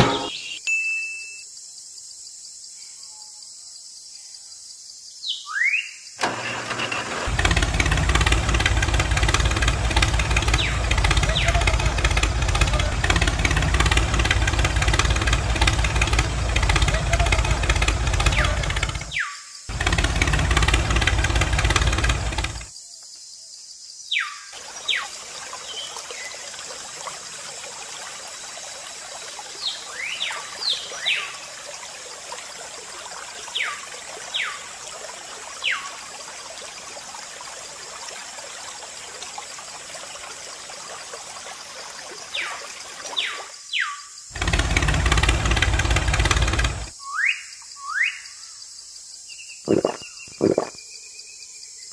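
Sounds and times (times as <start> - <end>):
small engine running: 6.2 - 22.7, 44.3 - 46.9
water splashing into plastic basin: 49.7 - 50.8.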